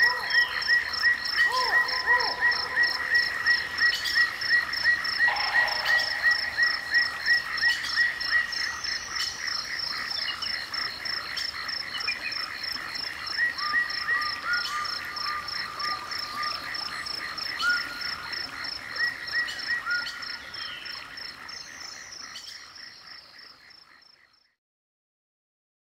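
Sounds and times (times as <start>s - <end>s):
lower animal call: 1.4s - 3.6s, 5.2s - 7.7s.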